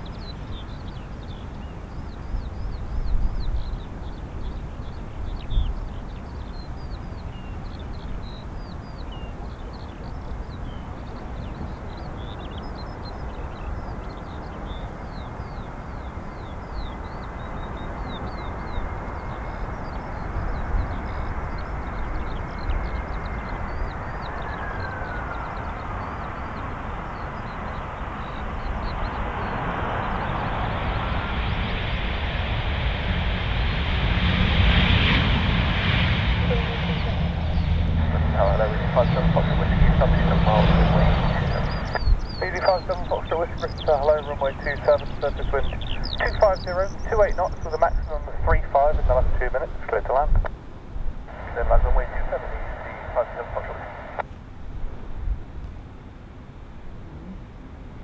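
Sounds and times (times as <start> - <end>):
jet engine roar: 0.0 - 54.3
jet engine whine: 0.0 - 55.1
wind rumble on microphone: 0.0 - 58.0.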